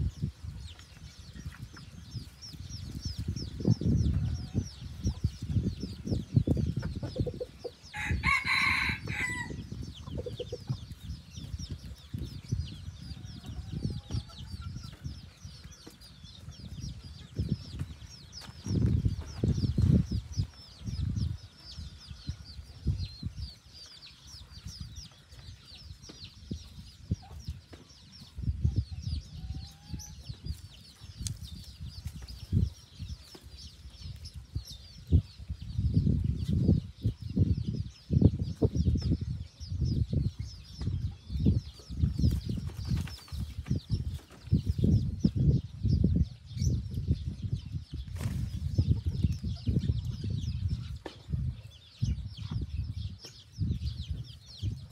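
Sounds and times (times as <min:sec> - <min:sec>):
soft chicken clucks: 0:00.1 - 0:54.9
rooster crowing: 0:08.0 - 0:09.6.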